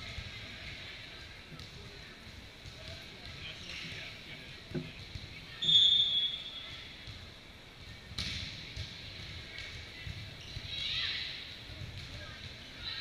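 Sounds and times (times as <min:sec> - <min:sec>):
referee whistle blast: 0:05.6 - 0:06.6.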